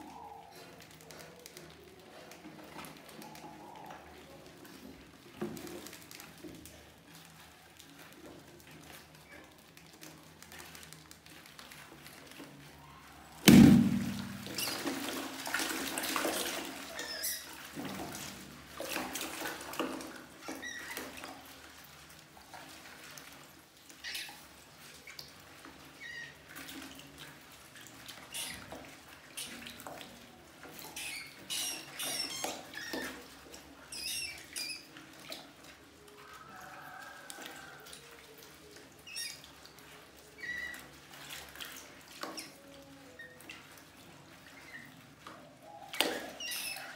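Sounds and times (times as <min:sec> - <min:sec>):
rats splashing in water: 0:00.0 - 0:46.9
balloon bursting with a bang: 0:13.4 - 0:14.5
rats squeaking: 0:16.8 - 0:18.3, 0:24.0 - 0:25.2, 0:30.7 - 0:35.1, 0:39.0 - 0:43.7, 0:45.6 - 0:46.9.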